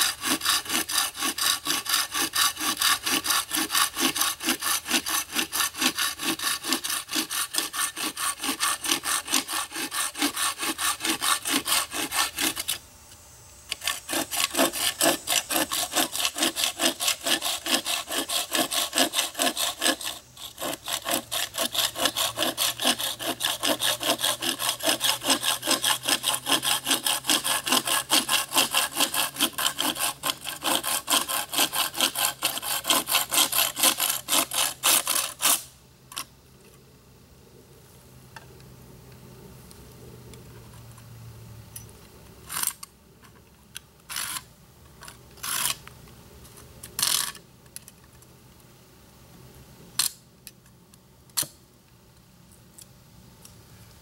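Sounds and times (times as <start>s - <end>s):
hand saw cutting wood: 0.0s - 12.8s, 13.7s - 36.3s, 44.1s - 44.5s, 45.4s - 45.8s, 47.0s - 47.4s.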